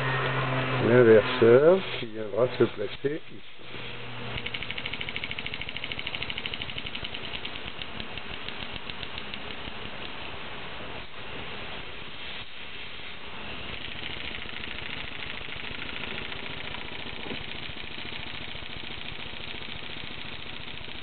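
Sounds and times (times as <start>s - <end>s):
model engine exhaust puffs: 0.9s - 10.3s, 13.5s - 21.0s
hiss of air: 10.8s - 13.8s.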